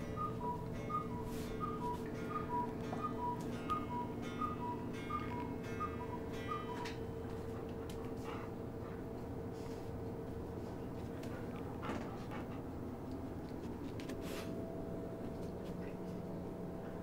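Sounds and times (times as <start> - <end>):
clock tick-tock ticking: 0.0 - 8.0
steady low hum: 0.0 - 17.0.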